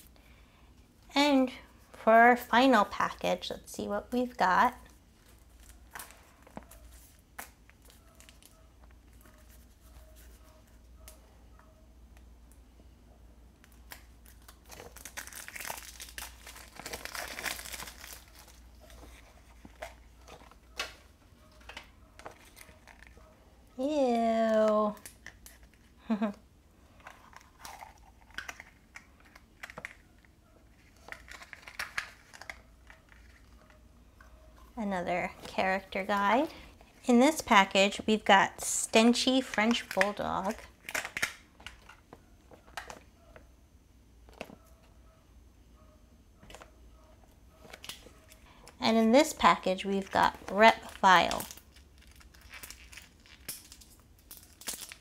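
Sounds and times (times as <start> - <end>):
faint low hum: 0.0 - 55.0
plastic wrapper crinkling and clicks: 13.6 - 23.2, 27.0 - 33.8, 39.3 - 43.1, 47.6 - 48.5, 50.0 - 55.0.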